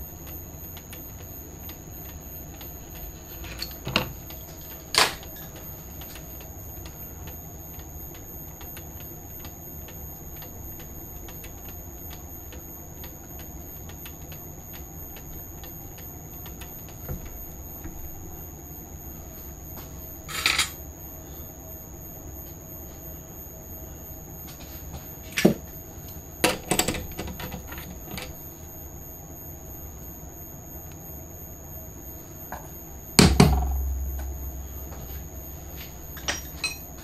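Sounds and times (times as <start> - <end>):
faint irregular ticking: 0.0 - 19.0
steady low hum: 0.0 - 37.0.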